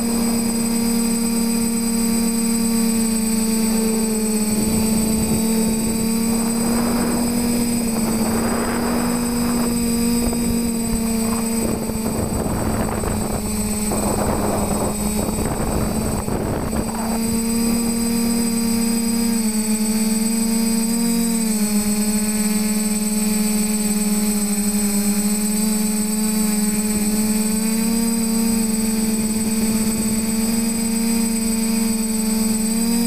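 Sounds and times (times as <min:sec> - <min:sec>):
rushing wind noise: 0:00.0 - 0:19.2
drone motors whining hum: 0:00.0 - 0:33.0.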